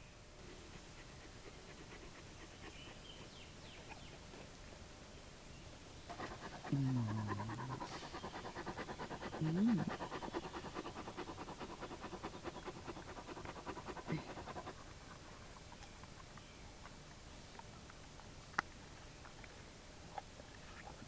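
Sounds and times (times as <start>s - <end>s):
large dog panting: 0.6s - 4.5s, 6.1s - 15.8s
dog low moan: 6.2s - 11.4s.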